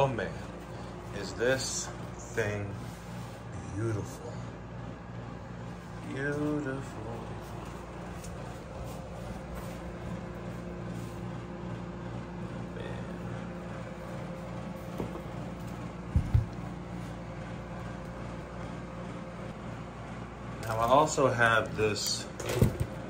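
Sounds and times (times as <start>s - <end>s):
appliance humming: 0.0s - 23.0s.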